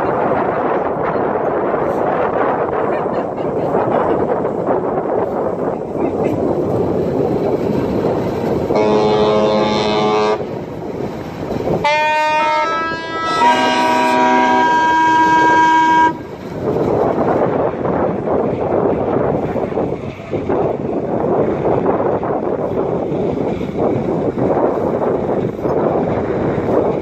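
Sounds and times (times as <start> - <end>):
wind noise on microphone: 0.0 - 27.0
ship horn blasts: 8.7 - 10.6, 11.7 - 16.2.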